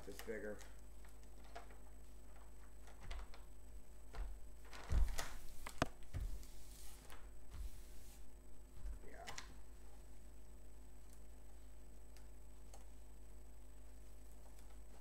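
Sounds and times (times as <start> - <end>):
paper sheet rustling and crinkling: 4.6 - 10.2.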